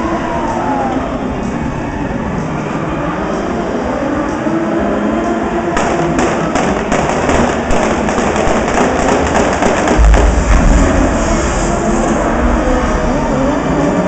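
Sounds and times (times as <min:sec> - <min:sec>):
cars running hard and sliding: 0:00.0 - 0:14.0
pyrotechnic pops crackling: 0:05.8 - 0:12.4
deep explosion boom: 0:09.0 - 0:14.0.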